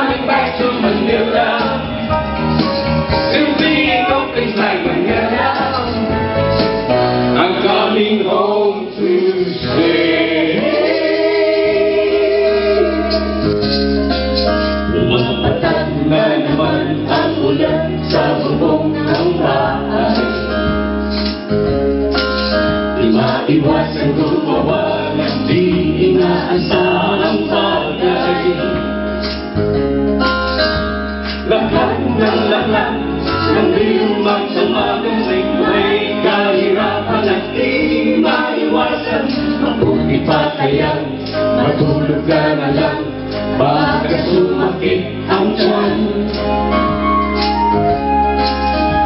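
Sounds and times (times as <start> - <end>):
group singing pop songs: 0.0 - 49.0
tambourines shaking: 13.1 - 14.9, 20.1 - 23.4
electric guitar: 38.7 - 49.0.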